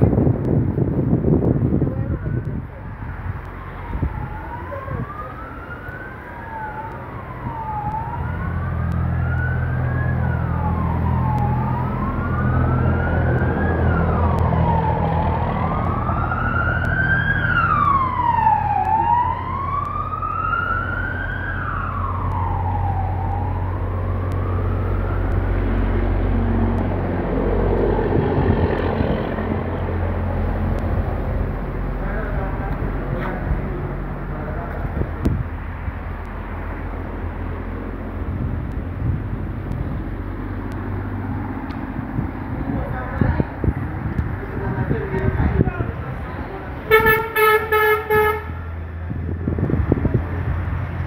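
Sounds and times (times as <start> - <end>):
siren wailing: 2.0 - 29.0
second siren tone: 3.6 - 25.8.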